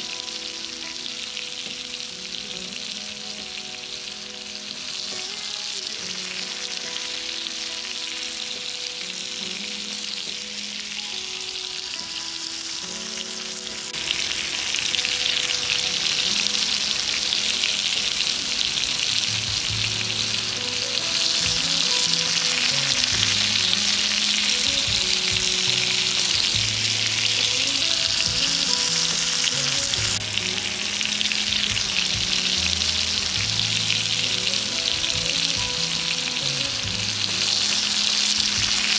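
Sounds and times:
fish sizzling in oil: 0.0s - 38.9s
soft background music: 0.0s - 38.9s.

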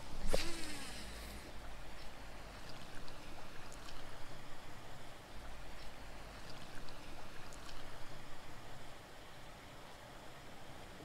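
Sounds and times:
faint light ticks: 1.9s - 4.1s.

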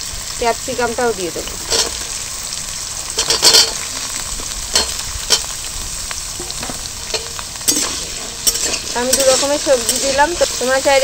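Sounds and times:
vegetables sizzling in hot oil: 0.0s - 11.0s
metal spatula scraping pan: 6.4s - 11.0s.

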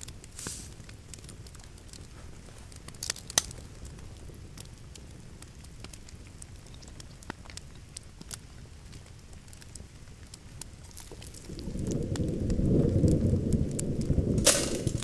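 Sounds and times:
small fire crackling: 0.0s - 15.0s
low rumbling room tone: 10.9s - 15.0s.

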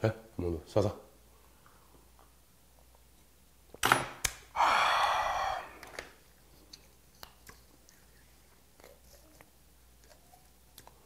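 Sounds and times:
breathy ahh exhale: 4.6s - 5.8s.

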